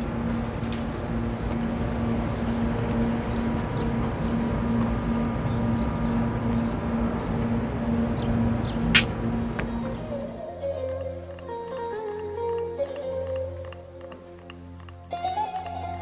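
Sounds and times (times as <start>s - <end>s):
low motor hum: 0.0s - 10.4s.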